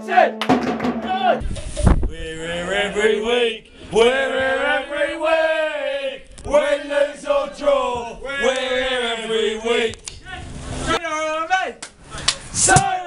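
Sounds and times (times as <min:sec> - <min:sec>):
men chanting in a group: 0:02.2 - 0:10.0.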